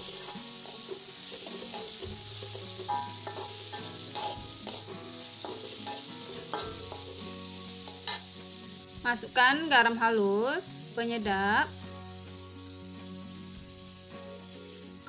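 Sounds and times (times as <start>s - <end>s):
metal spatula scraping a wok: 0.0s - 8.8s
vegetables sizzling in oil: 0.0s - 15.0s.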